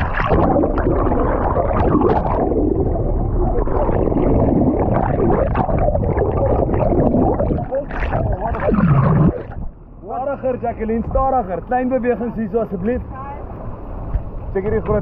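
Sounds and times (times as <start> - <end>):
rushing water: 0.0 - 9.7
boat engines rumbling: 0.0 - 15.0.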